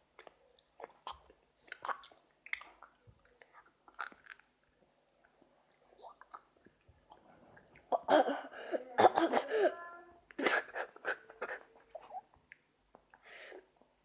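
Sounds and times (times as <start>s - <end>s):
boy coughing and spluttering: 7.9s - 12.2s.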